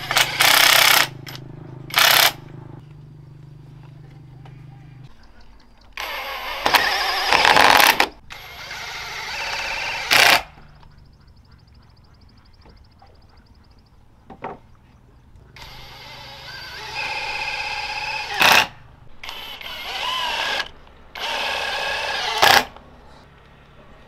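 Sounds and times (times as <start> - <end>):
cordless drill boring into wood: 6.0 - 10.5, 15.6 - 22.7.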